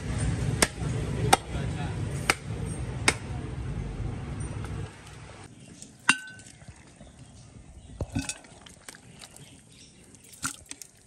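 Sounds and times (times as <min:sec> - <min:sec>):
metallic clink on cooking pot: 0:06.1 - 0:06.6.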